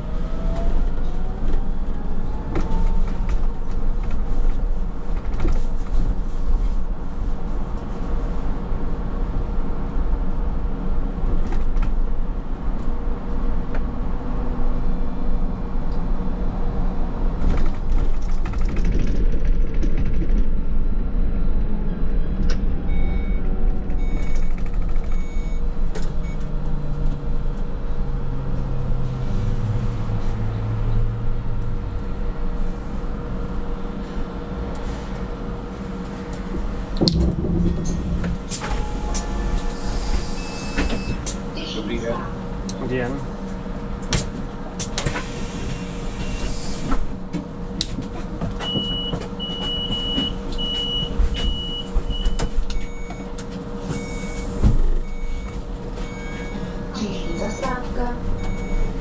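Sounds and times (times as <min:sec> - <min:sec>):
vehicle interior rumble: 0:00.0 - 0:59.0
low motor tone: 0:36.4 - 0:41.2
electric hum: 0:37.0 - 0:39.6
short beeps: 0:37.2 - 0:39.6, 0:40.4 - 0:41.2.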